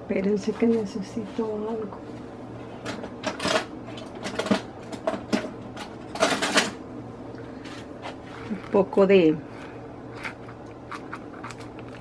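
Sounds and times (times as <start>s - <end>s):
kitchen items clattering: 2.8s - 6.8s.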